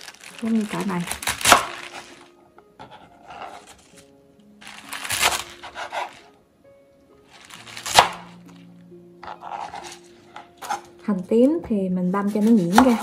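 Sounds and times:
soft background music: 0.0 - 13.0
knife cutting chives: 0.1 - 2.2, 2.8 - 4.0, 4.6 - 6.2, 7.3 - 8.5, 9.2 - 11.0, 12.1 - 13.0.

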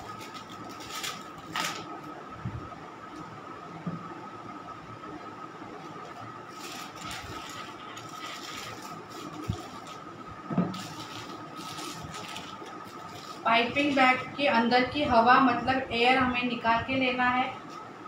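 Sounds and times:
plastic rustling: 0.0 - 2.2, 6.4 - 14.3
faint high hum: 0.0 - 18.0.

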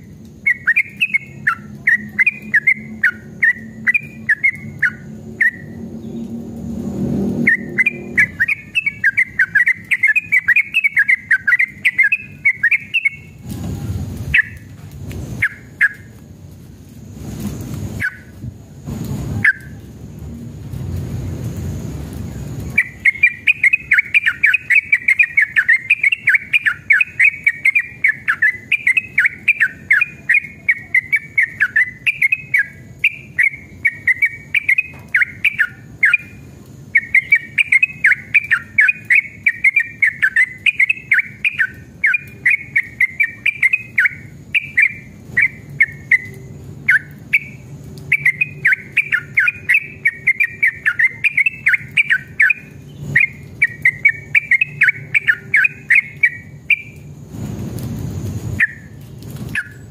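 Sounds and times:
bird warbling song: 0.4 - 6.4, 7.4 - 13.4, 14.3 - 14.7, 22.8 - 36.4, 37.0 - 57.1, 58.6 - 59.9.

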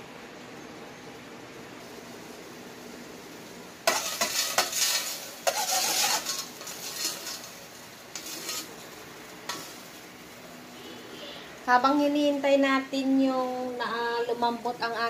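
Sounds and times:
steady low hiss: 0.0 - 15.0
metal utensil scraping in pot: 3.9 - 8.8.

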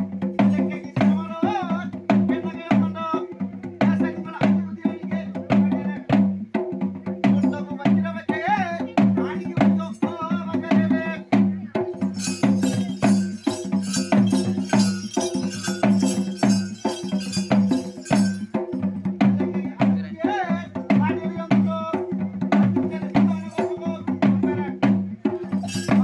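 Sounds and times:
drums beating quick rhythm: 0.0 - 26.0
high jingling: 11.9 - 18.8, 25.4 - 26.0
bending melody line: 12.0 - 18.5.

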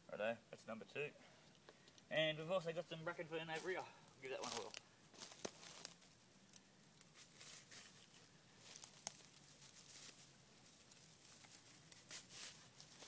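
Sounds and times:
dry fern rustling and crackling: 2.8 - 13.0.

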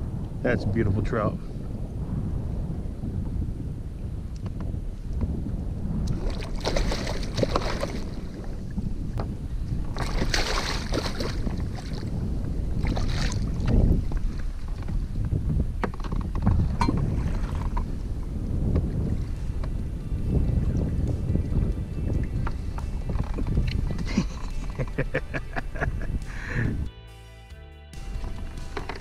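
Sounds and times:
wind rumbling on microphone: 0.0 - 26.9, 28.0 - 29.0
water splashing: 6.0 - 8.9, 9.7 - 14.9.

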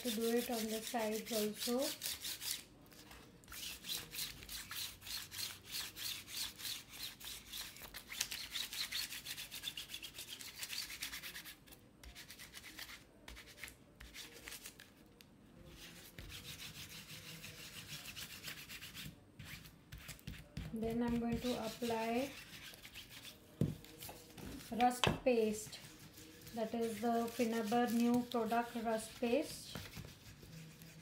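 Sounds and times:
ink pad scrubbing on canvas: 15.7 - 31.0.

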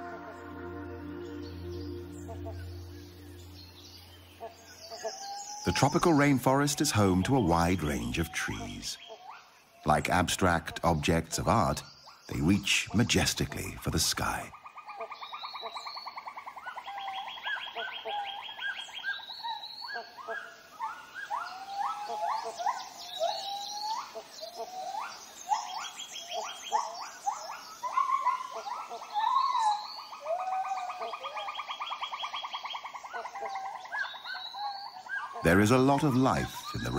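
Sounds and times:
upward-sweeping chirps and calls: 0.0 - 9.1, 16.9 - 36.9.

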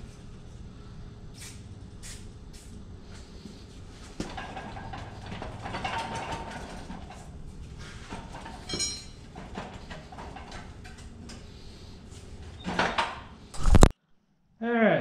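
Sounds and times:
metal scraping and rattling: 3.9 - 13.9
ringing metal clink: 8.7 - 9.2.

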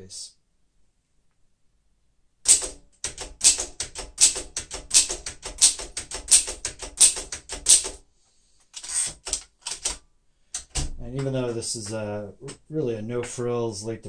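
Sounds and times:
manual typewriter clacking: 2.5 - 8.0, 8.7 - 10.0.

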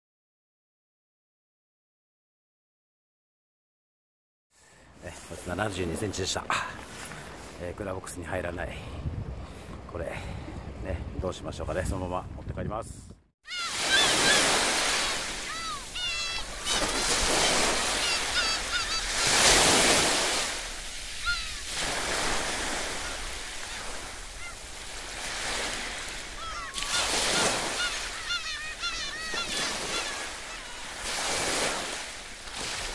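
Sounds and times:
birds calling: 13.5 - 32.4
waves breaking on rocky shore: 13.6 - 32.9.

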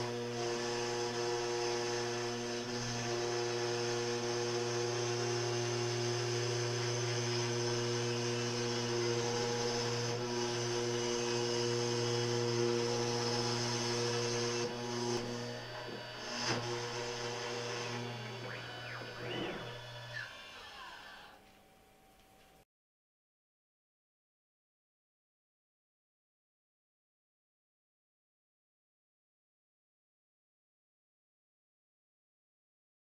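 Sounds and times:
router spindle milling: 0.0 - 21.4.

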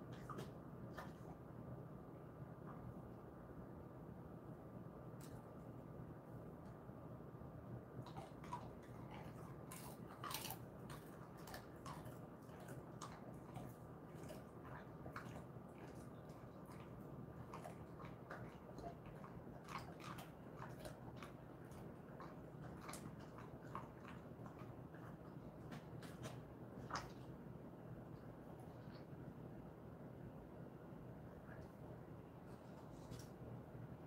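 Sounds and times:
dog chewing treat: 8.0 - 27.3.

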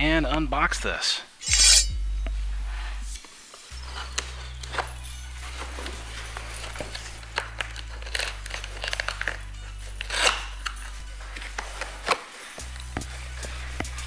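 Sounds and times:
background music with bass: 0.0 - 14.0
knife slicing packing tape: 6.9 - 10.8.

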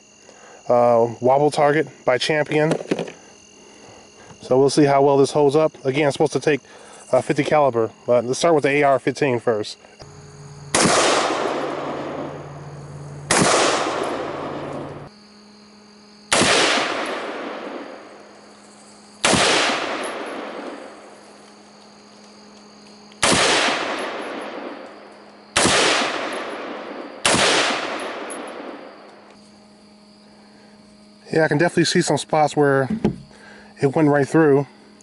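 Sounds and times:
rifle shots with echo: 10.7 - 15.0, 16.3 - 18.1, 19.2 - 20.9, 23.2 - 24.8, 25.6 - 29.0.

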